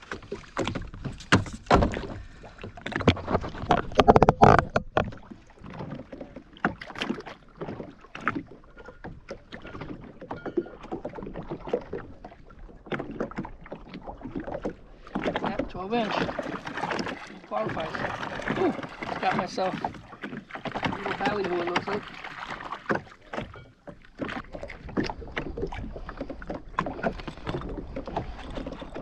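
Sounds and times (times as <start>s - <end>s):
water slapping against hull: 0.0s - 29.0s
knocks on hull: 0.1s - 12.0s, 12.9s - 29.0s.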